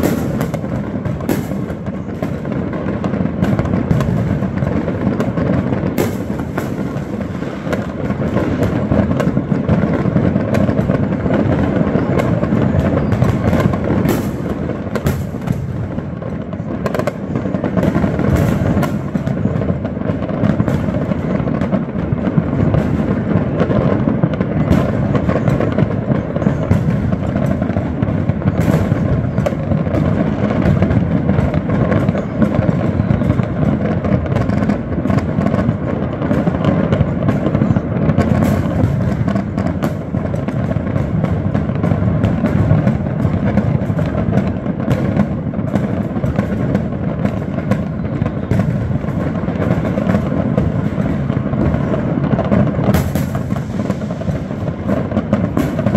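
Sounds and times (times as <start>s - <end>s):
fireworks bangs and crackles: 0.0s - 55.9s.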